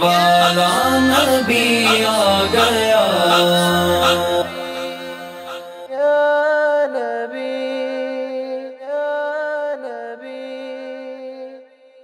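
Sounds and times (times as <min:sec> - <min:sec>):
wordless layered voices: 0:00.0 - 0:06.3.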